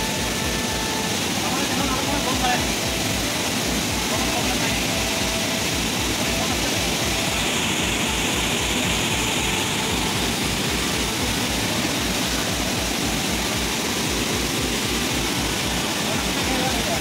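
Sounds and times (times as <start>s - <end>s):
river rushing over rocks: 0.0s - 17.0s.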